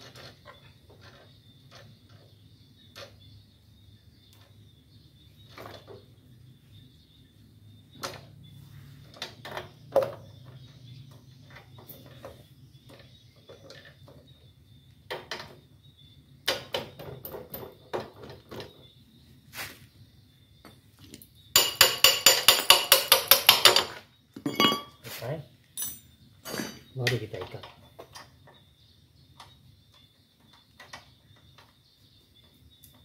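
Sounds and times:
fast sharp metal knocks: 21.6 - 24.0.

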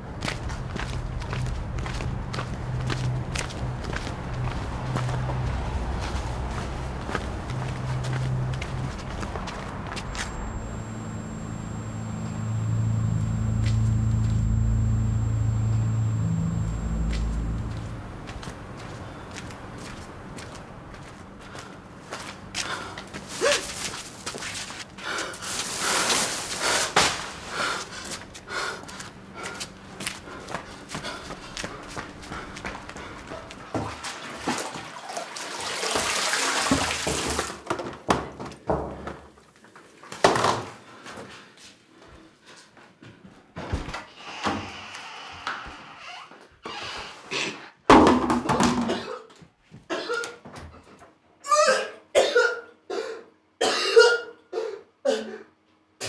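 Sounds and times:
man gagging and coughing: 51.6 - 55.4.

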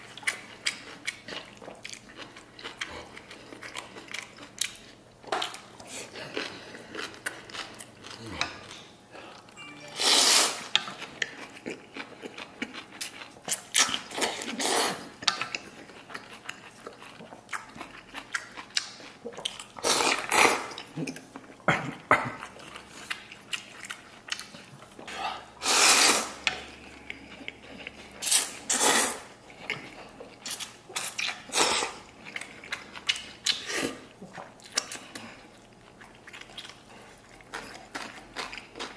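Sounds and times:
wet chewing and smacking: 0.0 - 9.5, 10.8 - 25.1, 29.3 - 38.9
person slurping noodles: 25.6 - 26.4, 28.2 - 29.3.

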